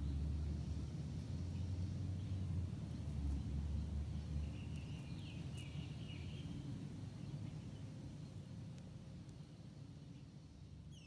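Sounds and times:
bird chirping: 0:00.0 - 0:08.4, 0:09.3 - 0:11.0.

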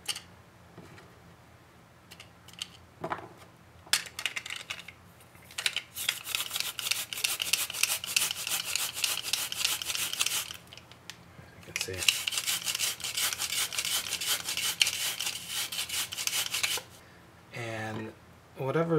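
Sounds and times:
rasping clatter of garlic mincer: 0:06.0 - 0:10.6, 0:11.8 - 0:16.9.

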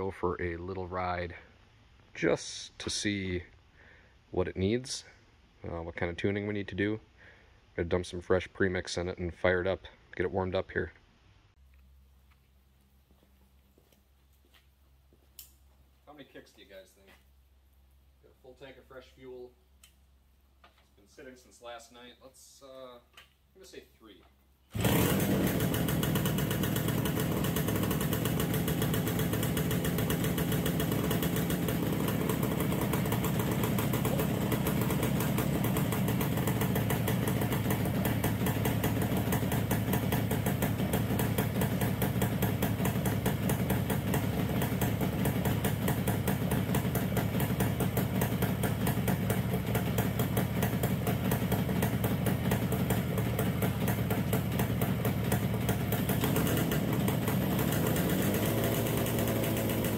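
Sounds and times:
two-stroke engine idling: 0:24.8 - 0:59.9.

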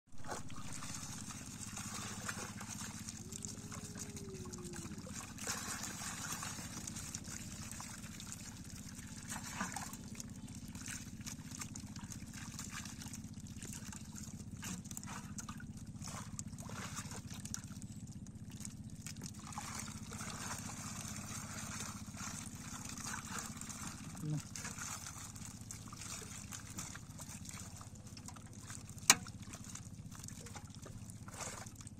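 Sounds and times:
steady low hum: 0:00.2 - 0:31.9
water splashing and trickling: 0:00.2 - 0:31.9.

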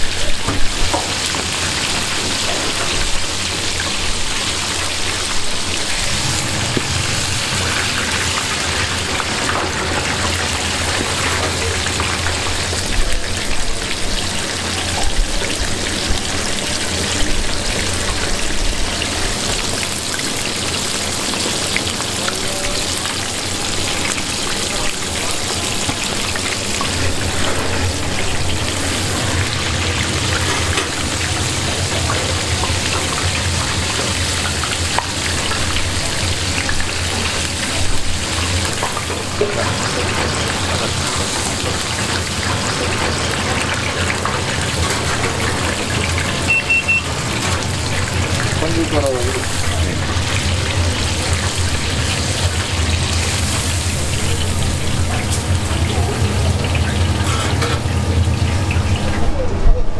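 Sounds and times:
oil sizzling and bubbling: 0:00.0 - 0:59.9
low hum: 0:04.3 - 0:13.3.

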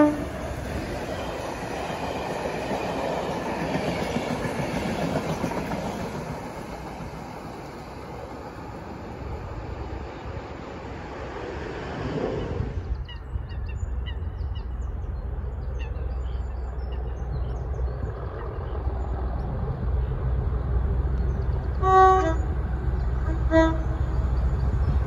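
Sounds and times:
two-tone train horn: 0:00.0 - 0:00.4, 0:21.8 - 0:22.6, 0:23.2 - 0:24.0
diesel locomotive engine rumble: 0:00.0 - 0:25.0.

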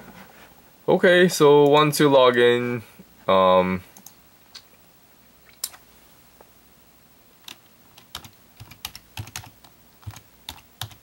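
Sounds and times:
keyboard typing: 0:07.4 - 0:11.0.

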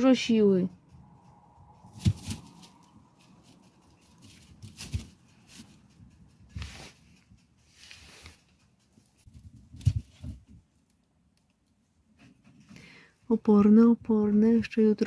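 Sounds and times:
rabbit soft thumps: 0:01.8 - 0:02.9
straw rustling: 0:01.9 - 0:05.8, 0:06.5 - 0:10.5.

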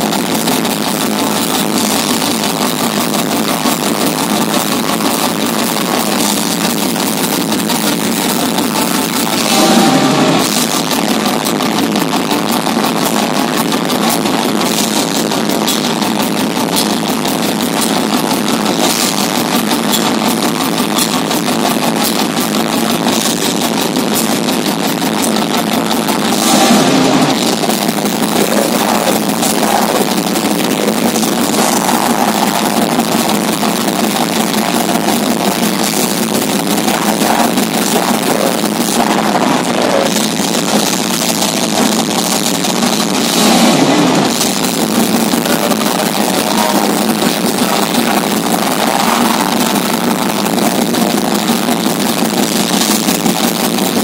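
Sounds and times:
metal band playing live: 0:00.0 - 0:54.0.

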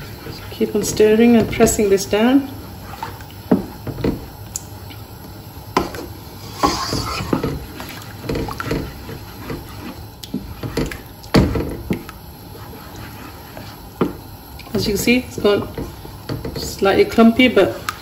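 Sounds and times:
spoon squelching thick mixture: 0:06.6 - 0:11.3, 0:11.9 - 0:16.2.

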